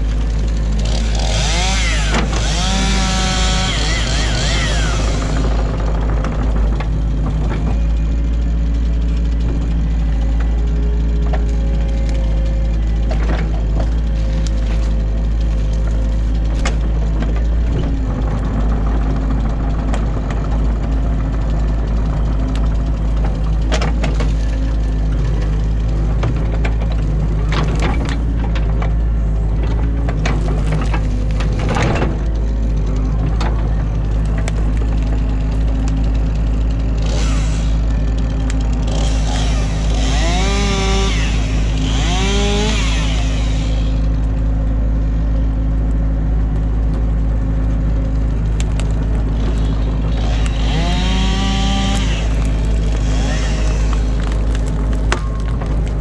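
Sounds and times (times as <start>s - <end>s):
sticks and branches snapping: 0.0s - 8.0s, 9.8s - 18.4s, 46.5s - 56.0s
excavator engine droning: 0.0s - 56.0s.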